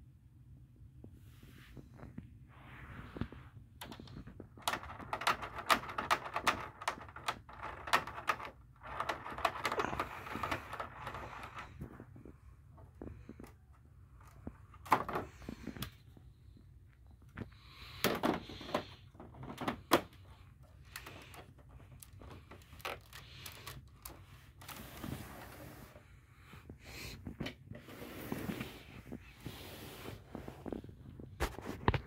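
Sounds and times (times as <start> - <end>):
soft breathing: 9.7 - 31.4.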